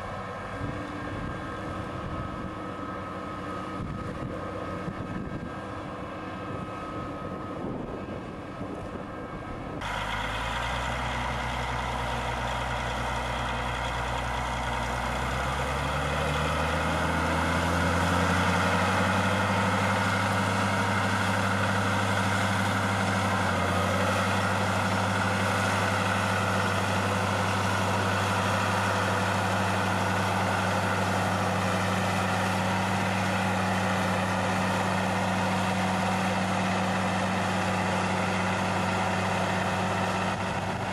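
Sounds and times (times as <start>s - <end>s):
heavy tractor engine: 0.0s - 40.9s.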